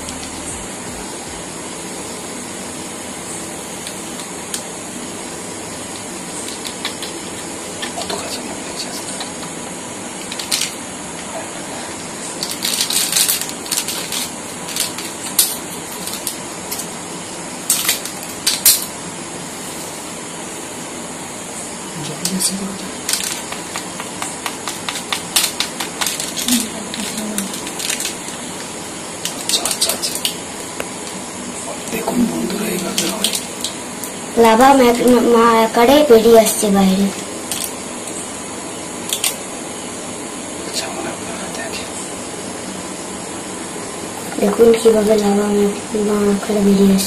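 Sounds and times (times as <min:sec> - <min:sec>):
steady hiss: 0:00.0 - 0:47.0
foil sachet crinkling and tearing: 0:12.4 - 0:16.9, 0:24.6 - 0:28.7.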